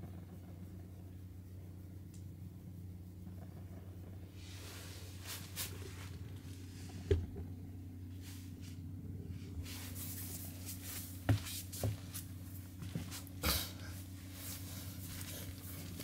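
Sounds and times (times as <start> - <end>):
low hum: 0.0 - 16.0
soft bumps and brushing: 3.4 - 16.0.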